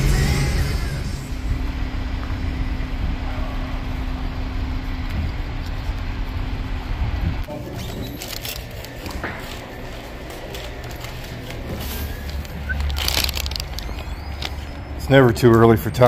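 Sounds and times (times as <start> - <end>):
music: 0.0 - 1.4
vehicle engine rumble: 0.0 - 16.0.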